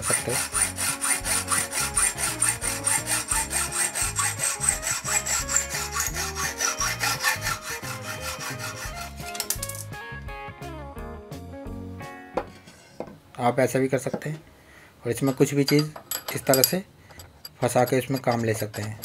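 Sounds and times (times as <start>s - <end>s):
hacksaw cutting metal: 0.0s - 9.7s, 15.3s - 19.0s.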